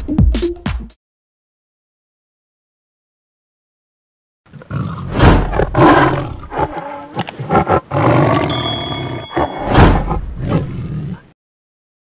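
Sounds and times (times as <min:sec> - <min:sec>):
tiger roaring: 0:04.5 - 0:11.3.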